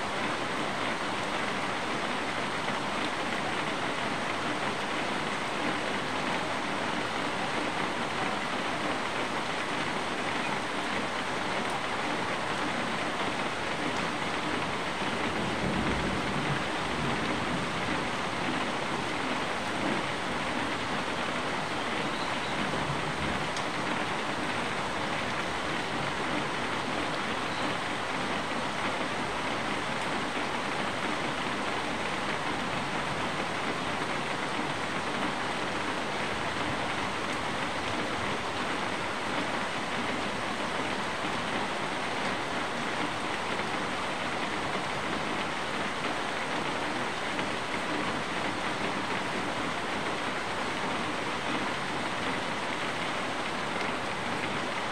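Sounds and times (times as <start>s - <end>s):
steady rain falling: 0.0s - 54.9s.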